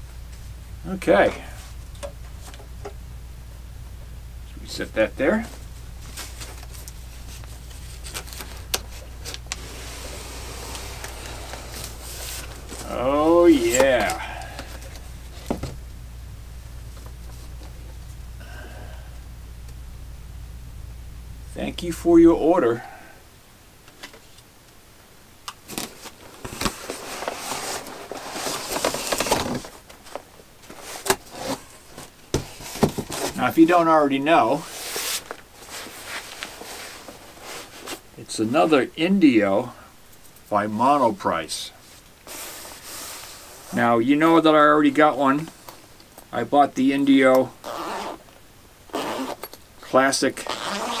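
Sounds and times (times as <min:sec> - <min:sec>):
steady low hum: 0:00.0 - 0:51.0
cardboard scraping and rubbing: 0:06.1 - 0:15.8, 0:25.7 - 0:33.5, 0:34.5 - 0:38.0, 0:42.2 - 0:43.9.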